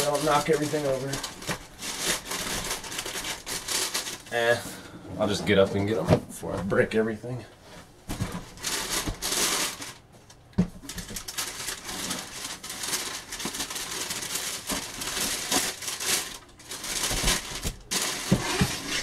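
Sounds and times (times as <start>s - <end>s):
cardboard boxes rustling and knocking: 8.0s - 9.4s, 16.8s - 19.0s.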